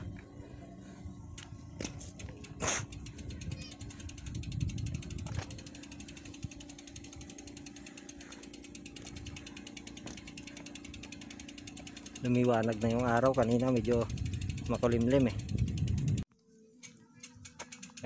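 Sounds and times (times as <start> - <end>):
low rumble: 0.0 - 8.0
bicycle freewheel ticking: 0.8 - 18.0.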